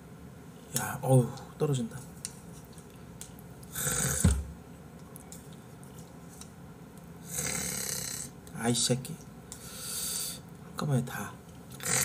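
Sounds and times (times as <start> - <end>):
low throaty burp: 3.8 - 4.4, 11.8 - 12.0.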